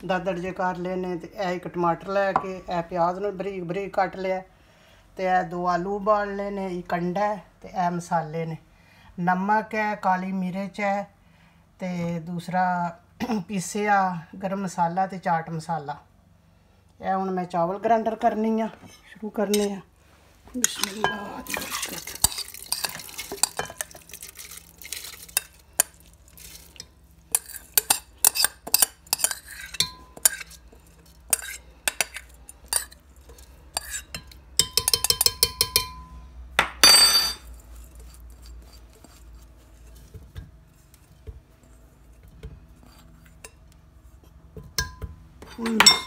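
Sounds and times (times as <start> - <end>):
spoon scraping glass bowl: 20.6 - 35.9, 37.0 - 42.2, 42.8 - 44.3
clinks and taps on glass: 34.6 - 37.4, 44.7 - 46.0.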